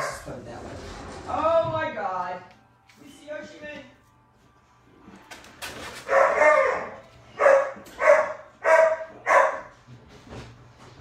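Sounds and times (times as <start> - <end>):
puppy barking: 6.0 - 9.8.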